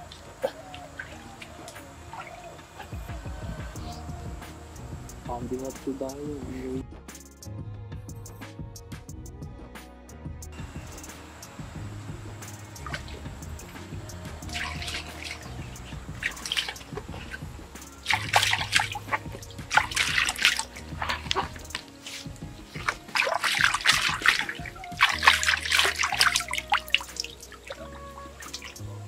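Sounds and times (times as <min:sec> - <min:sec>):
hands splashing stream water: 0:00.0 - 0:03.5, 0:10.6 - 0:29.0
background music: 0:00.0 - 0:29.0.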